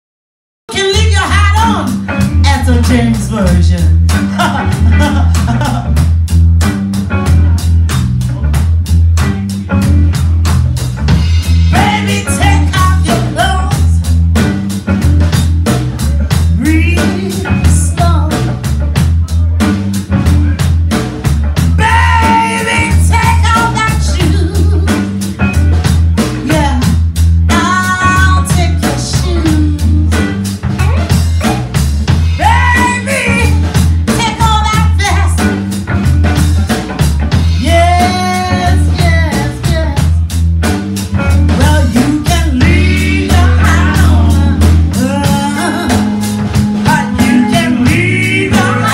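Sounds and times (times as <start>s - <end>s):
woman singing: 0.7s - 4.6s, 11.7s - 14.1s, 16.5s - 18.6s, 21.8s - 25.2s, 26.4s - 30.4s, 32.3s - 35.5s, 37.5s - 40.2s, 41.5s - 48.9s
blues band playing: 0.7s - 48.9s
pulsing bass line: 0.8s - 48.9s.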